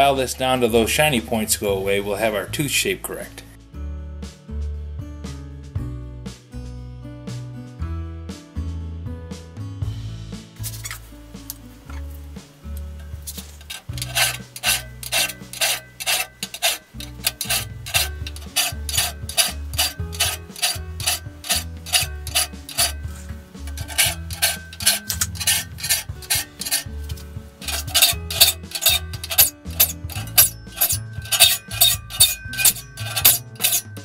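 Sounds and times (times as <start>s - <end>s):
file rasping on saw teeth: 13.6s - 34.0s.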